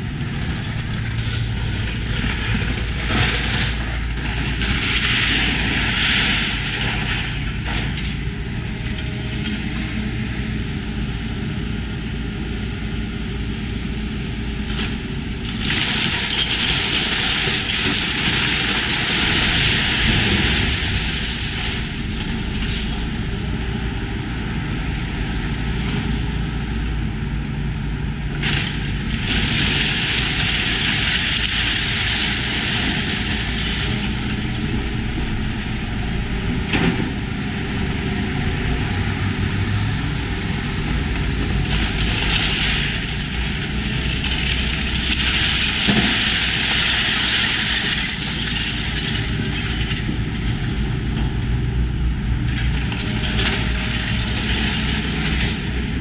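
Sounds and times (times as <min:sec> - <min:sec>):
crunching crashing debris: 0:00.0 - 0:08.2, 0:14.6 - 0:23.4, 0:28.2 - 0:37.4, 0:40.9 - 0:51.4
diesel engine running: 0:00.0 - 0:56.0.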